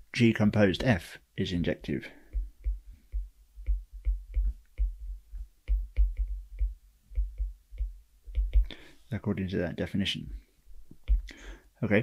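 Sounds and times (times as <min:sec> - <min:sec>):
stylus tapping on tablet screen: 0:01.8 - 0:08.9, 0:10.9 - 0:11.3.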